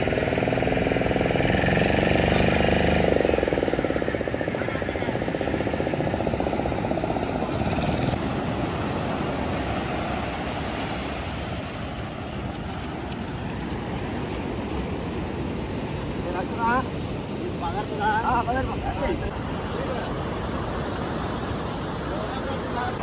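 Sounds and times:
outboard motor running: 0:00.0 - 0:16.0
surf washing on beach: 0:00.0 - 0:23.0.

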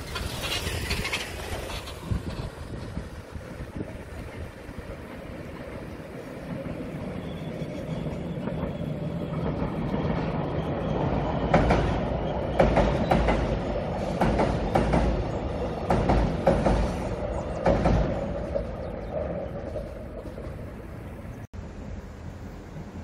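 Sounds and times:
train wheels clacking over rail joints: 0:00.0 - 0:10.5, 0:11.4 - 0:18.9
train rumble on bridge: 0:00.0 - 0:23.0.

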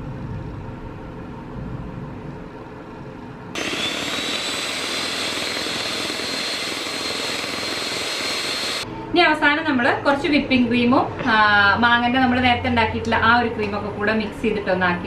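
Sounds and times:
electric hand mixer whining: 0:03.6 - 0:08.8.

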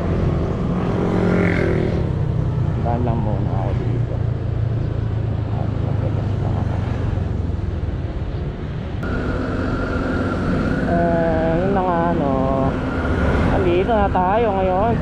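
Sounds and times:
road and wind noise: 0:00.0 - 0:15.0
scooter engine running: 0:09.0 - 0:15.0
wavering multi-tone sound: 0:09.0 - 0:15.0.

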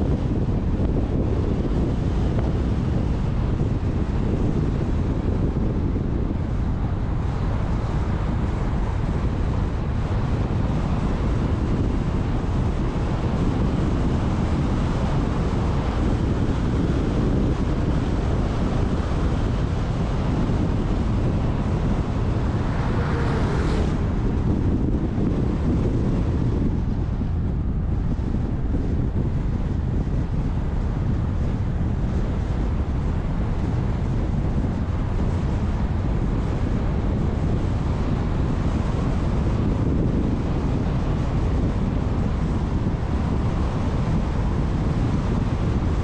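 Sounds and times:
car road rumble: 0:00.0 - 0:46.0
wind noise on microphone: 0:00.0 - 0:46.0
quad bike passing: 0:20.7 - 0:26.6.

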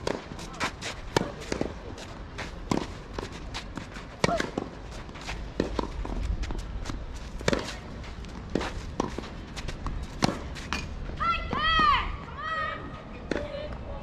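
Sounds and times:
racket striking tennis ball: 0:00.0 - 0:01.8, 0:02.6 - 0:06.2, 0:06.9 - 0:11.0.

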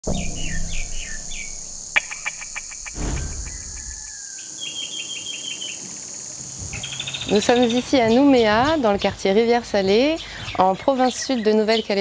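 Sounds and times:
whoosh: 0:00.0 - 0:04.2
fast cricket-like chirping: 0:00.1 - 0:05.4
high insect hiss: 0:00.1 - 0:08.9
insects trilling: 0:00.1 - 0:10.4.

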